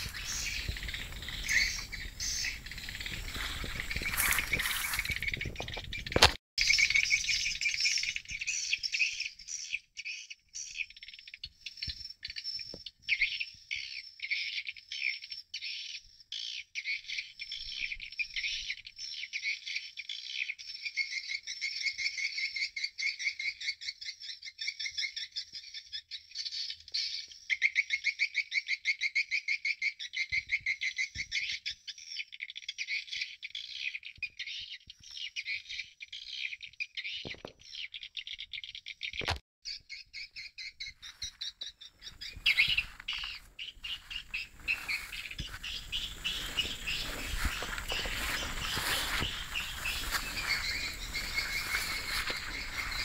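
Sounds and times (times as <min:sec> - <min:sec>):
rustling noise: 0:00.0 - 0:06.4, 0:42.1 - 0:53.0
rapid high chirps from speakers: 0:42.0 - 0:53.0.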